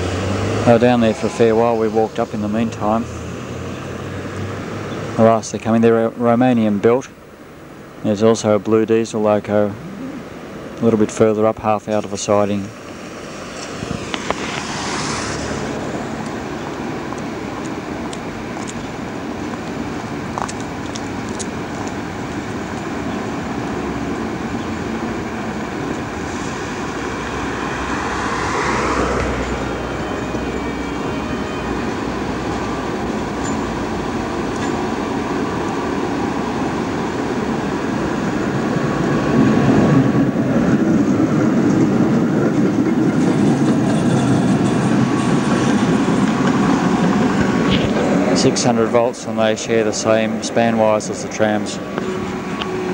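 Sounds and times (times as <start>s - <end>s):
locomotives rolling on tracks: 0.0s - 52.9s.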